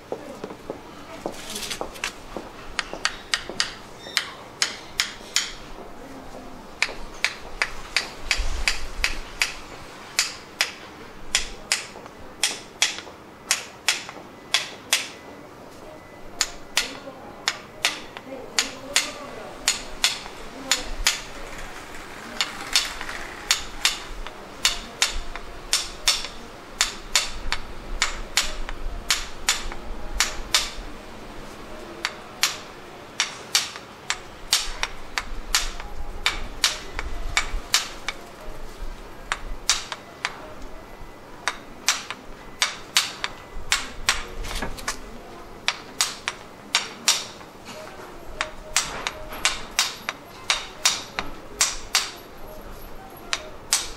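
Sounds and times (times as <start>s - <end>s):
wooden mallet tapping knife handle: 2.4s - 5.6s, 6.8s - 9.6s, 10.2s - 15.2s, 23.5s - 30.8s, 33.2s - 38.3s, 48.4s - 52.2s, 53.3s - 53.9s.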